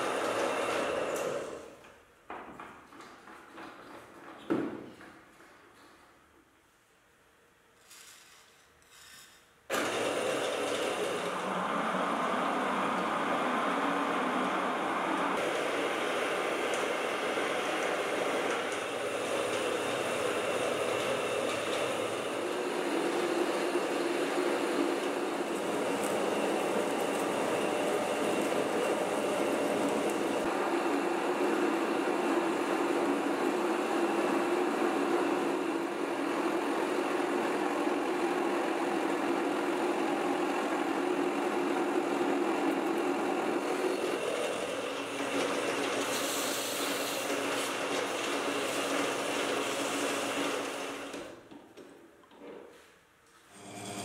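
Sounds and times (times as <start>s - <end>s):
metal lathe cutting: 9.7s - 51.3s
abrasive paper hissing: 46.0s - 47.8s.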